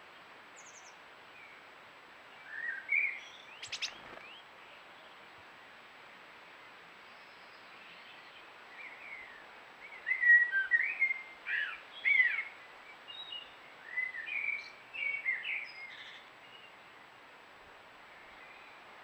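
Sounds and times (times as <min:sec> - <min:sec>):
small birds chirping: 0:00.1 - 0:01.6, 0:02.4 - 0:05.2.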